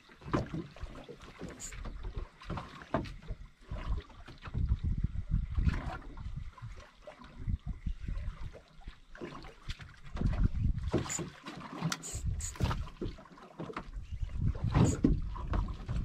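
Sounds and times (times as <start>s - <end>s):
water lapping against boat hull: 0.0s - 16.0s
wind buffeting microphone: 3.3s - 8.9s, 9.8s - 11.3s, 12.0s - 13.1s, 13.9s - 16.0s.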